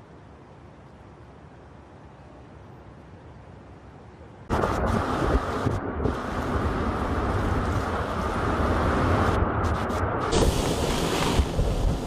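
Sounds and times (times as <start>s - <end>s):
storm wind buffeting microphone: 4.5s - 12.0s.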